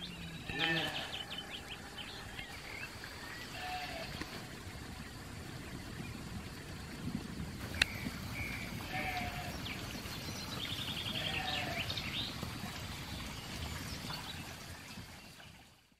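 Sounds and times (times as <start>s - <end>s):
sheep bleating: 0.4s - 1.8s, 3.5s - 4.0s.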